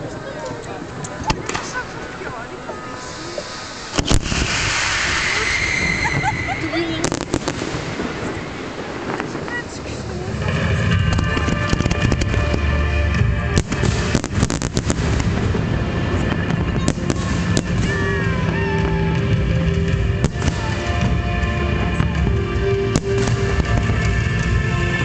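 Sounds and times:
fireworks bangs and crackles: 0.0 - 25.0
music playing: 10.2 - 25.0.

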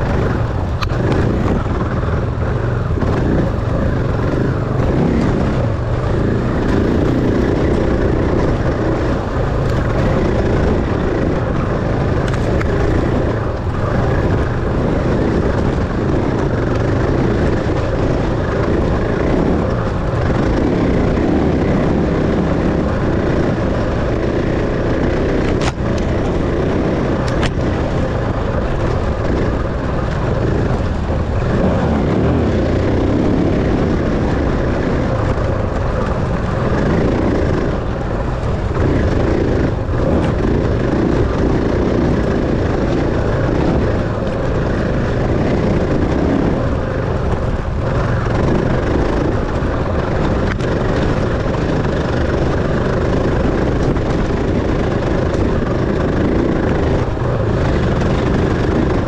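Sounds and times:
dirt bike engine running: 0.0 - 59.0.

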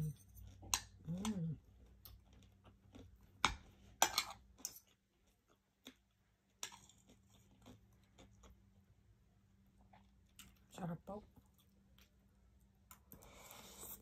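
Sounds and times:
chewing fried chicken: 0.0 - 3.4, 4.4 - 8.9.

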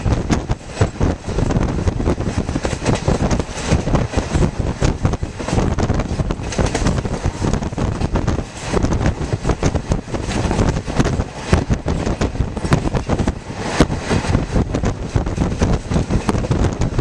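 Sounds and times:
train wheels rumbling on track: 0.0 - 17.0
wind buffeting microphone: 0.0 - 17.0.

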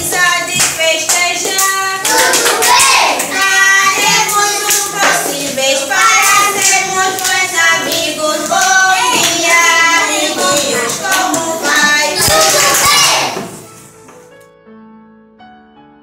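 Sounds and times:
hand claps: 0.0 - 5.4, 6.1 - 13.2
children singing together: 0.0 - 13.6.

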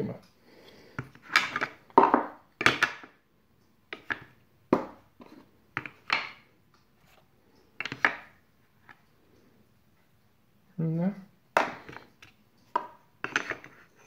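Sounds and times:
wooden knocks and scrapes: 3.9 - 6.4, 11.6 - 14.0.

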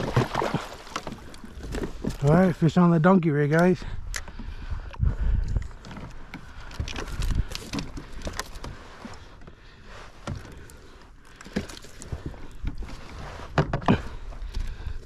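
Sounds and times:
water splashes: 0.0 - 2.4.

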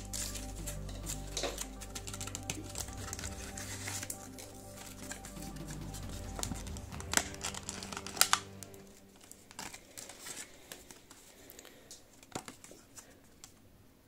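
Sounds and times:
background music: 0.0 - 10.4
plastic packaging crinkling: 0.0 - 13.6.

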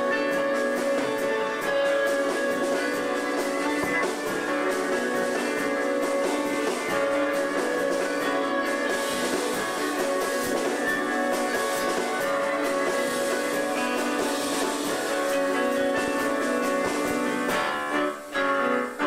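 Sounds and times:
guitar: 0.0 - 19.0.

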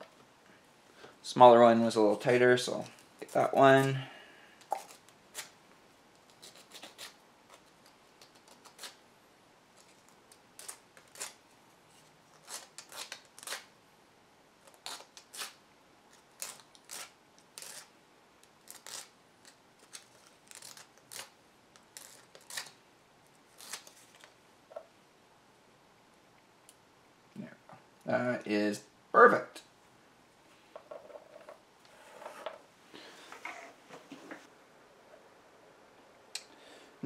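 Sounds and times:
sandpaper scratching plastic: 6.3 - 9.0.

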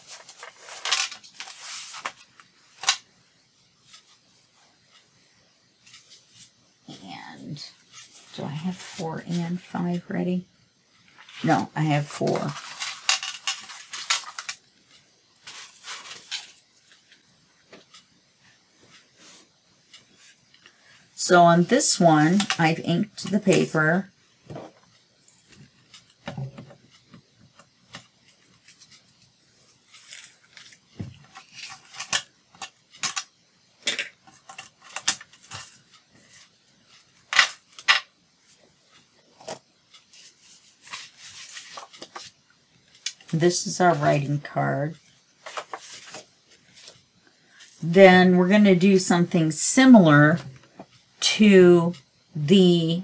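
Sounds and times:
paper pages rustling: 0.0 - 3.0, 12.2 - 18.0, 27.9 - 33.2, 38.9 - 44.1, 45.0 - 47.8.

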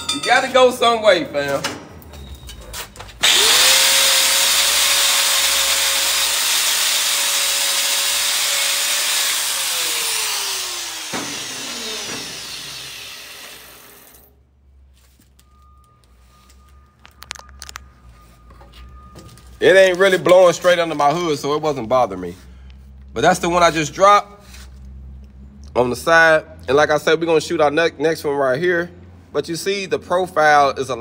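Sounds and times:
angle grinder grinding steel: 3.2 - 14.3
grinder disc spinning down: 3.2 - 14.3.

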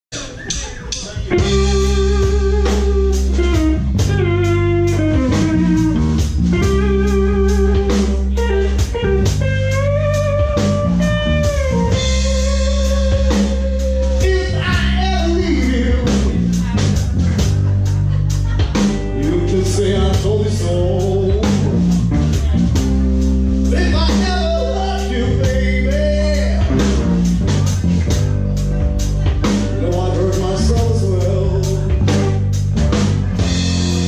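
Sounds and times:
drum kit beat: 0.1 - 34.0
electric bass: 1.2 - 34.0
electric guitar lead line: 1.2 - 34.0.

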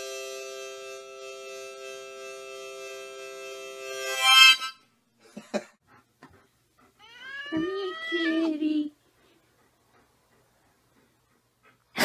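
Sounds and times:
held musical chord: 0.0 - 4.8.

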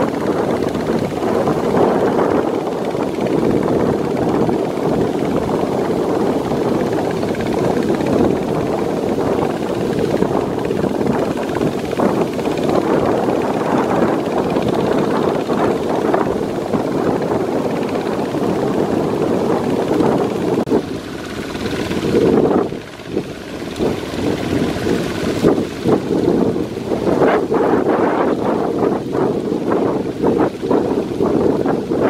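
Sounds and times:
diesel engine running: 0.0 - 27.2
wheels splashing through mud: 20.8 - 28.0.

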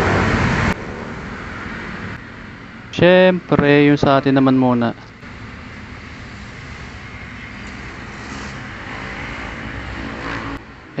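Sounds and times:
traffic noise: 0.0 - 11.0
vehicle engine running: 5.0 - 10.6.

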